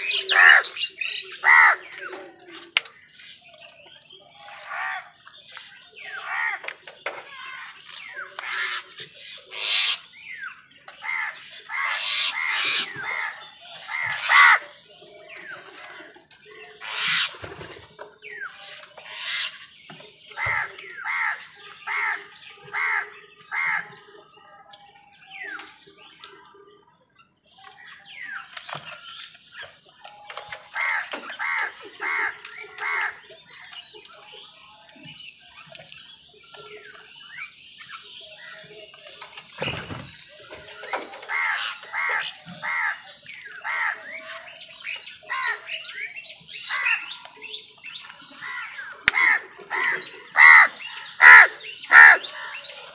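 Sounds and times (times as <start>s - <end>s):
crows cawing: 49.1s - 52.2s.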